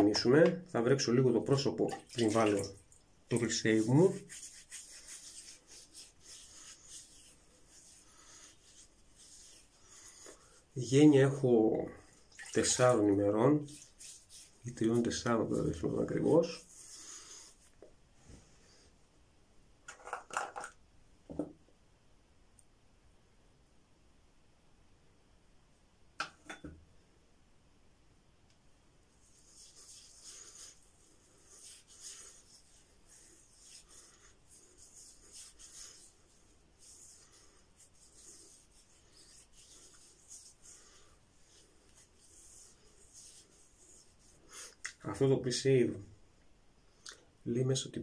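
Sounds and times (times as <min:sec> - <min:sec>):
hands rubbing on stubbly skin: 0:01.0 - 0:11.4, 0:12.0 - 0:17.9, 0:29.1 - 0:45.2.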